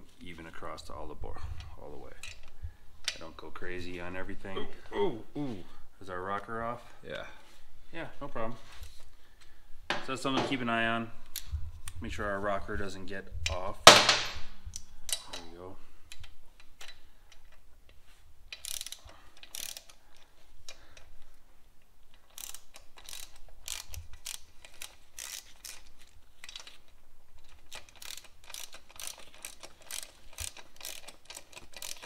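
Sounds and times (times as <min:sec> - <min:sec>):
hand ratchet clicking: 0:18.5 - 0:21.1, 0:22.2 - 0:32.0.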